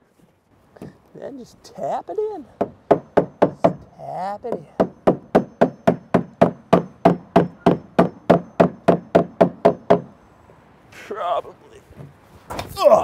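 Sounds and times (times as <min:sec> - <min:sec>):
hammer knocking on wooden board: 0:02.6 - 0:10.1.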